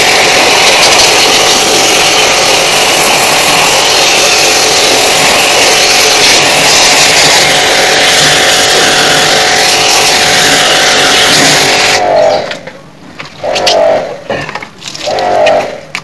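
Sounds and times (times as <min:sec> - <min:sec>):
water jet hissing: 0:00.0 - 0:12.3
pressure washer pump humming: 0:00.0 - 0:12.6.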